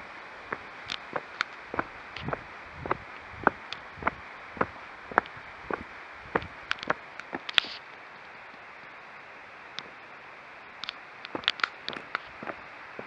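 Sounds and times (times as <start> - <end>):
footsteps: 0.0 - 7.8, 11.3 - 13.0
steady hiss: 0.0 - 13.0.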